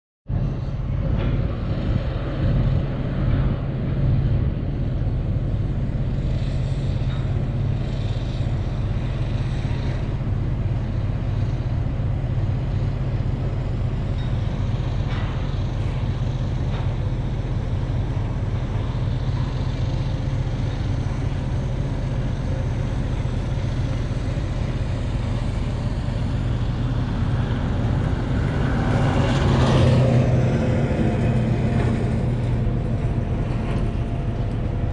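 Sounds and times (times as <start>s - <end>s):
engine drone inside vehicle cab: 0.3s - 34.9s
vehicle passing: 25.5s - 34.3s.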